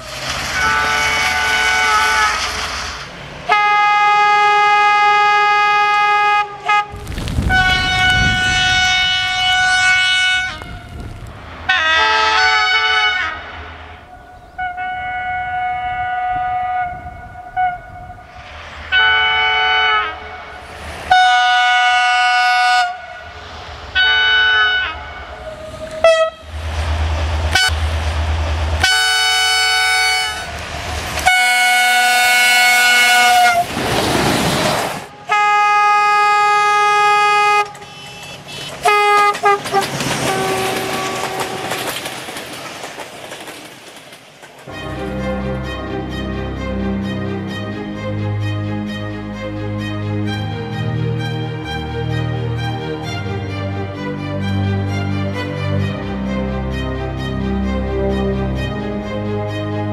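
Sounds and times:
passing train rushing: 0:00.0 - 0:59.9
locomotive air horn blasts: 0:00.4 - 0:02.8, 0:03.5 - 0:11.0, 0:11.7 - 0:23.4, 0:24.0 - 0:26.6, 0:27.5 - 0:27.8, 0:28.8 - 0:30.6, 0:31.2 - 0:33.7, 0:35.2 - 0:41.8.

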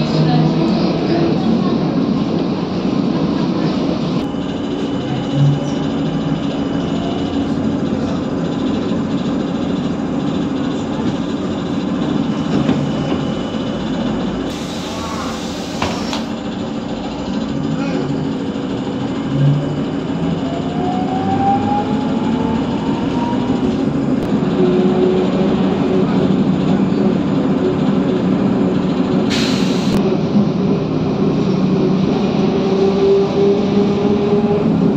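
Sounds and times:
trolleybus interior hum: 0:00.0 - 0:34.9
pneumatic door air hiss: 0:14.5 - 0:16.3, 0:29.3 - 0:30.0.

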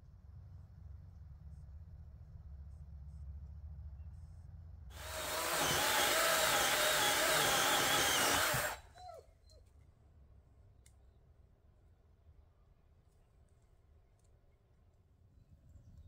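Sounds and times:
electric chainsaw cutting wood: 0:04.9 - 0:08.8.

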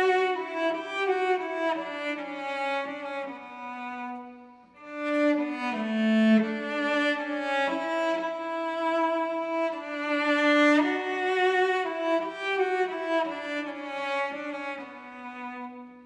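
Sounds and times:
bowed cello long notes: 0:00.0 - 0:16.0.

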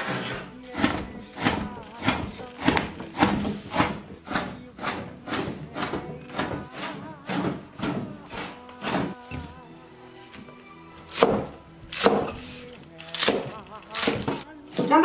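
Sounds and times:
cleaver chopping meat on wooden board: 0:00.7 - 0:09.5, 0:11.1 - 0:12.4, 0:13.2 - 0:14.9.

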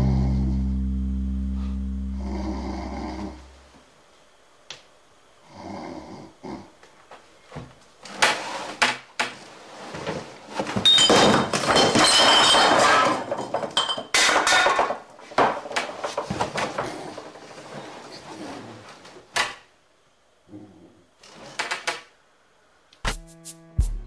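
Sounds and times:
glass bottles clinking on wood: 0:10.8 - 0:15.0.

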